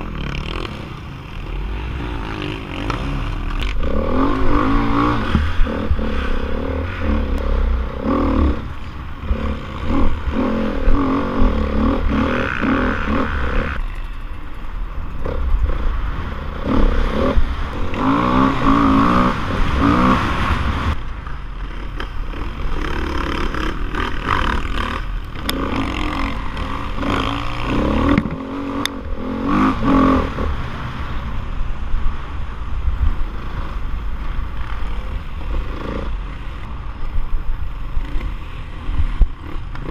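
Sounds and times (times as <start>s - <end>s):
dirt bike engine revving: 0.0s - 13.9s, 15.2s - 21.0s, 21.6s - 30.6s.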